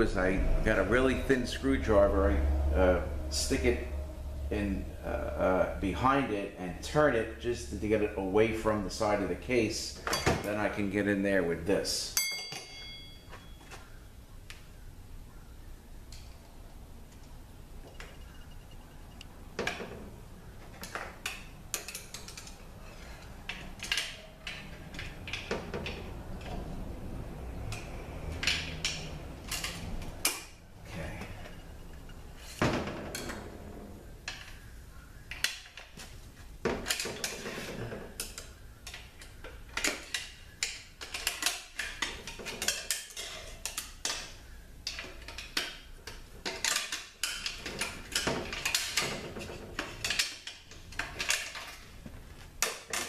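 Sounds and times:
steel tools clinking on metal: 12.1s - 13.6s.

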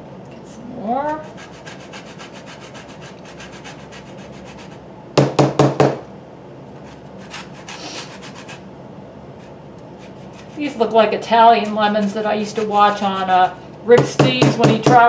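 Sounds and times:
lemon grated on a zester: 9.9s - 13.6s.

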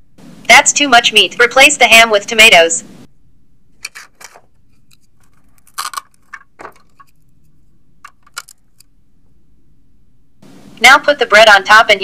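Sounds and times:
plastic toy pieces clicking: 5.6s - 7.2s, 8.0s - 8.9s.

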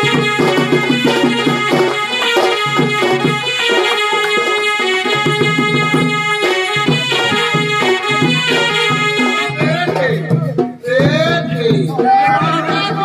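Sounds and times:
reedy harmonium-like melody: 0.0s - 10.6s
barrel drum: 0.0s - 13.0s
person singing: 9.3s - 13.0s.

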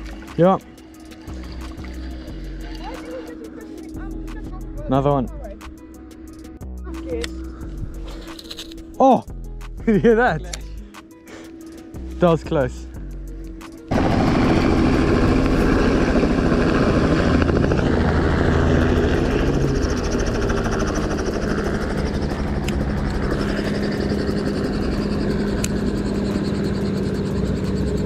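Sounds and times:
helicopter rotors chopping: 0.0s - 7.3s, 13.6s - 28.0s.

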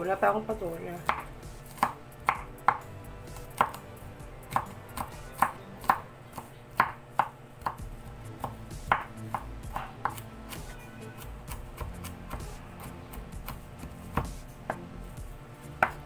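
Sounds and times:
knife chopping on wooden board: 1.0s - 14.9s, 15.7s - 16.0s.

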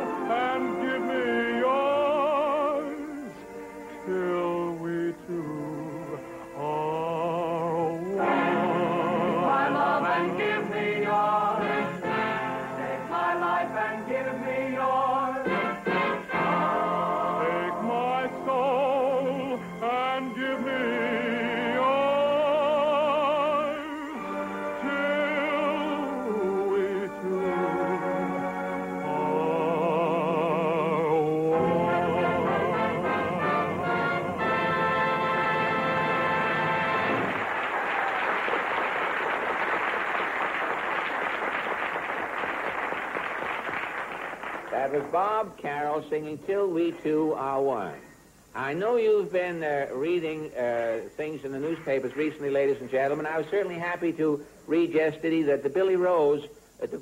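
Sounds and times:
man singing operatic ballad: 0.0s - 12.2s, 16.3s - 34.8s, 44.7s - 57.0s
musical accompaniment: 0.0s - 37.8s
audience applause: 36.6s - 45.2s.

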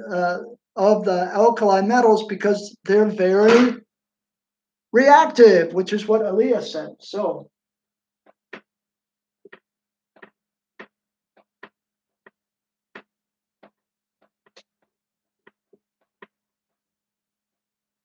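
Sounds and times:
marker clicking on whiteboard: 9.5s - 12.4s, 13.0s - 16.4s.

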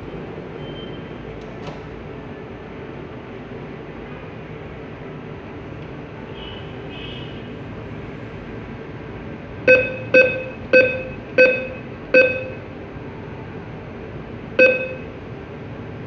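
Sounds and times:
steady hum: 2.2s - 16.0s
keypad beeps: 9.7s - 12.6s, 14.6s - 15.1s.

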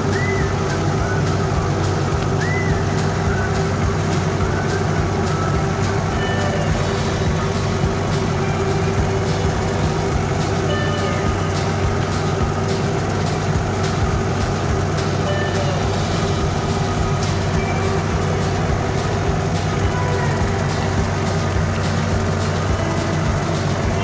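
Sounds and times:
short high chirps: 0.0s - 24.0s
tractor engine running: 0.0s - 24.0s.

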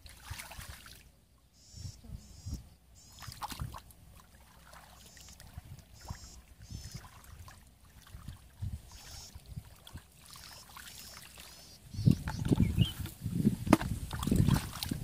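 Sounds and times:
muddy water sloshing and dripping: 0.0s - 1.1s, 3.1s - 15.0s
soft splashes: 0.0s - 1.1s, 3.1s - 11.8s, 14.1s - 15.0s.

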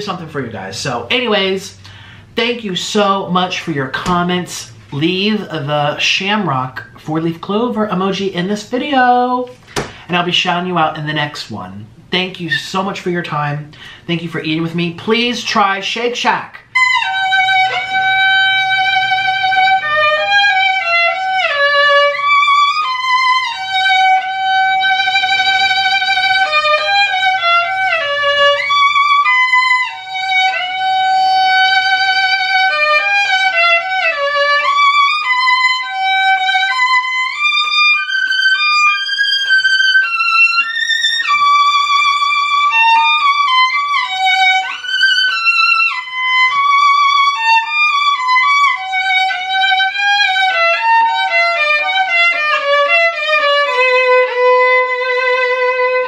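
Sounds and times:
solo violin melody: 16.5s - 56.0s.

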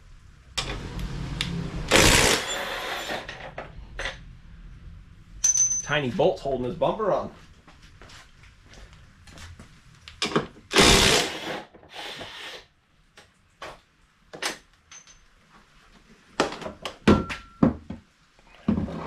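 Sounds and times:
cordless power tool running: 1.9s - 3.1s, 10.8s - 12.5s.

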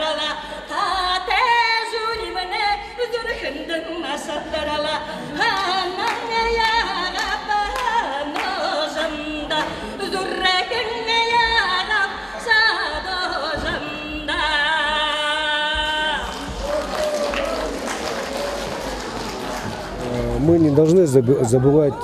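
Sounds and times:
woman singing into a microphone: 0.0s - 16.6s.

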